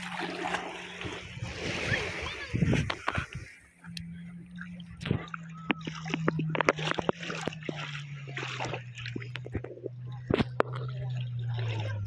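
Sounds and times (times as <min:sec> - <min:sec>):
low hum: 0:00.0 - 0:12.0
sea water splashing: 0:00.0 - 0:12.0.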